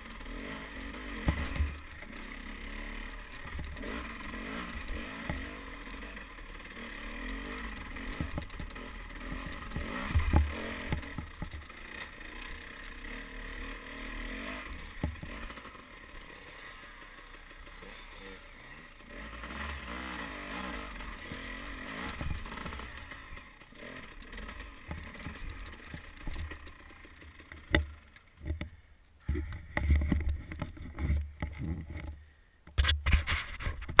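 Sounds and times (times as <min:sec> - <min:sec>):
dirt bike engine revving: 0:00.0 - 0:28.2
knocks from bumpy ground: 0:01.2 - 0:01.8, 0:08.1 - 0:11.7, 0:27.4 - 0:34.0.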